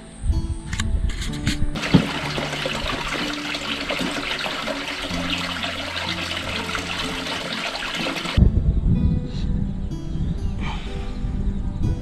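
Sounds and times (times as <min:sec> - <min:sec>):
water pouring into stone tank: 0:01.8 - 0:08.4.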